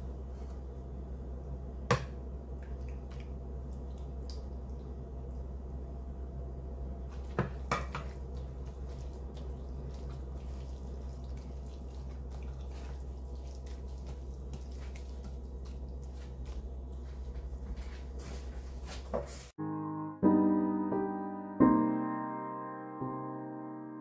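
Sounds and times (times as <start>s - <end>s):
low hum: 0.0s - 18.9s
hands squishing wet food: 2.0s - 5.8s, 7.0s - 18.4s.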